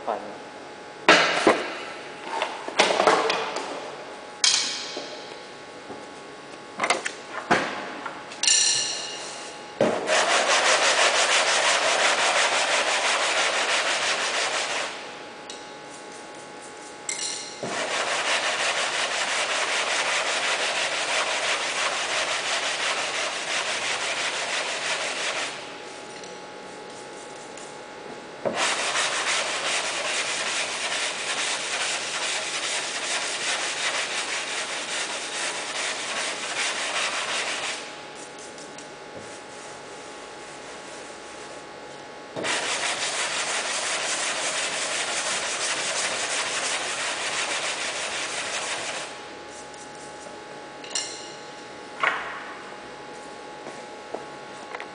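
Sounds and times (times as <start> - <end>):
sandpaper rasping on filler: 10.0 - 15.0, 17.6 - 26.1, 28.5 - 38.5, 42.4 - 50.3.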